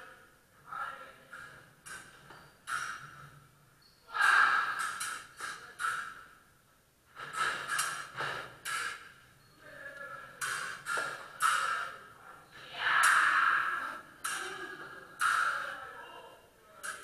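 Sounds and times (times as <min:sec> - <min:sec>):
fencing footwork: 0:01.3 - 0:03.4, 0:04.1 - 0:06.3, 0:07.1 - 0:09.2, 0:10.4 - 0:12.1, 0:12.9 - 0:15.8.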